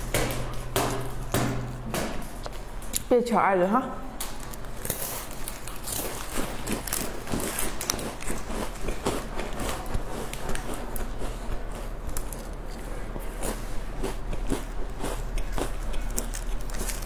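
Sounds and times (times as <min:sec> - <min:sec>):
cracker crunching: 0:04.2 - 0:17.0.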